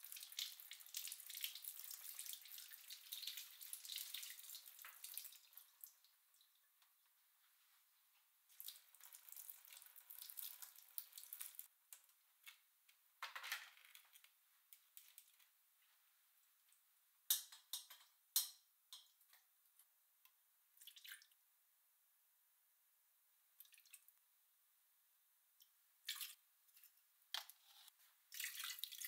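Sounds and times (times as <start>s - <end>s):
water trickling and splashing: 0.0s - 6.6s, 8.5s - 11.7s, 28.3s - 29.0s.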